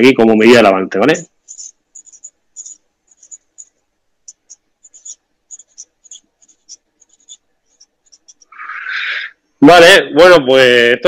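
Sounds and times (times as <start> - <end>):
marker pen scratching on paper: 1.1 - 9.3.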